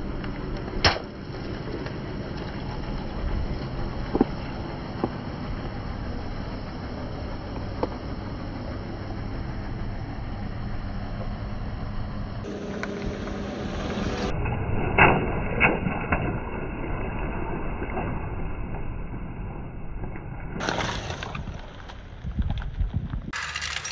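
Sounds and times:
objects popping under tyre: 0:00.0 - 0:05.8, 0:20.6 - 0:23.9
car rumbling: 0:00.0 - 0:23.9.

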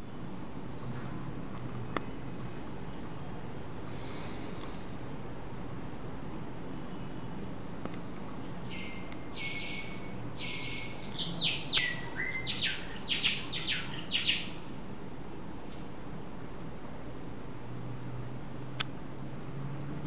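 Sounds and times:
background hiss: 0:02.3 - 0:17.6
songbird singing: 0:08.4 - 0:14.7.

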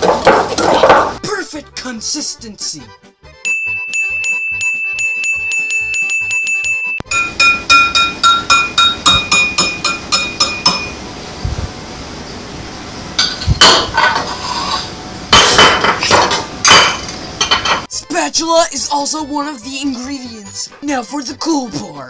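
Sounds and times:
kitchen utensils clattering: 0:00.0 - 0:01.2, 0:07.1 - 0:11.0, 0:13.2 - 0:17.9
background music with steady beat: 0:00.0 - 0:11.0
whisk clinking against ceramic bowl: 0:07.1 - 0:11.0.

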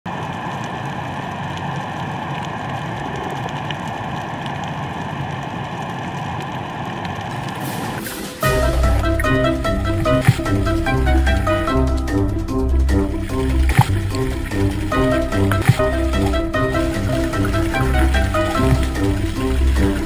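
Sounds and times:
low hum: 0:00.2 - 0:20.0
underwater hiss: 0:07.3 - 0:11.4.

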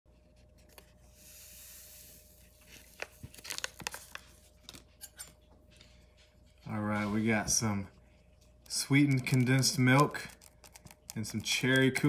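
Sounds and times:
paper crinkling: 0:02.4 - 0:04.9, 0:08.9 - 0:12.0
packet tearing open: 0:02.8 - 0:04.2.

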